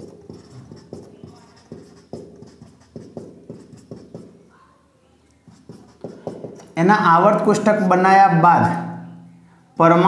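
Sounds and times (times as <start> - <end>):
marker pen writing on whiteboard: 0.0 - 4.5, 5.4 - 7.6.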